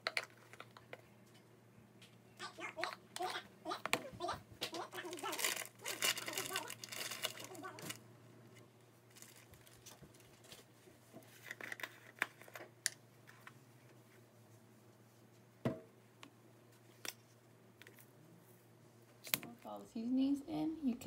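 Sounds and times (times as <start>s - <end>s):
spice containers handled: 0.0s - 1.4s, 3.8s - 8.0s, 9.1s - 13.6s.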